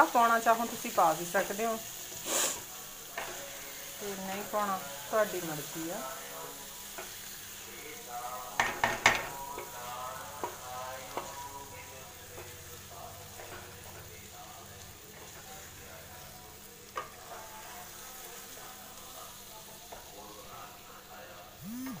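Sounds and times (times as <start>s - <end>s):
food sizzling in a pan: 0.0s - 22.0s
spatula knocking against pan: 8.6s - 9.4s.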